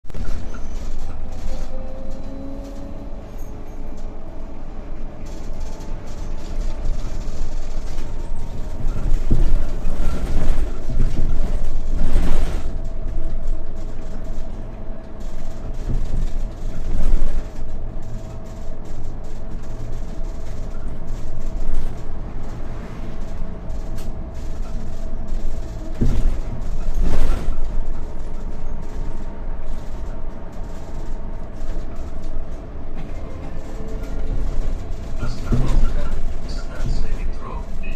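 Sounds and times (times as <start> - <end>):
road rumble: 0.0 - 37.9
knocks and rattles over bumps: 5.3 - 37.8.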